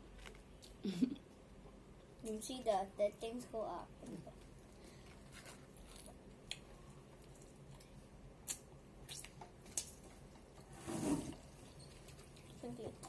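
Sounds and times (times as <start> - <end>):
soft eating clicks and smacks: 5.4 - 10.5.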